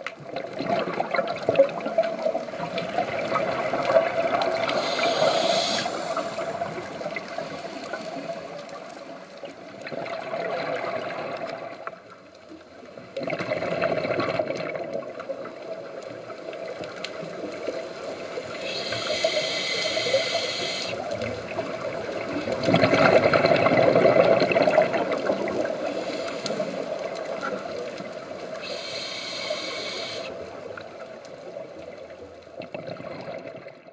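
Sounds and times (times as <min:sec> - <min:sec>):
exhaled bubbles rushing: 0:00.2 - 0:07.5, 0:09.8 - 0:11.9, 0:13.0 - 0:19.3, 0:19.9 - 0:28.7, 0:32.6 - 0:33.9
regulator inhale hiss: 0:04.5 - 0:08.4, 0:18.4 - 0:21.1, 0:25.6 - 0:27.0, 0:28.6 - 0:30.5.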